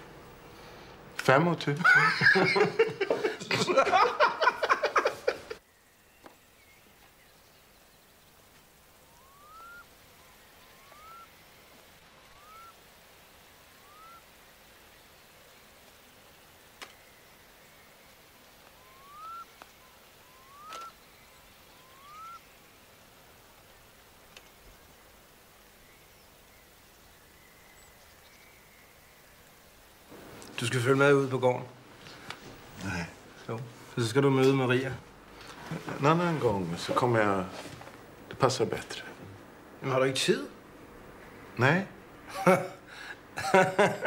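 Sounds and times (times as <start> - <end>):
man laughing: 1.8 - 5.6, 42.3 - 44.0
bird whistling rising note: 9.2 - 11.3, 12.3 - 12.7, 13.8 - 14.2, 18.8 - 19.5, 20.2 - 21.0, 21.8 - 22.4.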